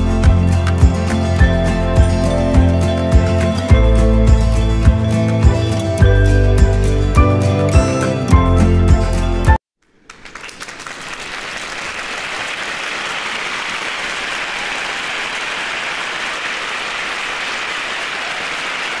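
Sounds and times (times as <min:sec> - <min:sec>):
crowd applauding: 0:10.0 - 0:19.0.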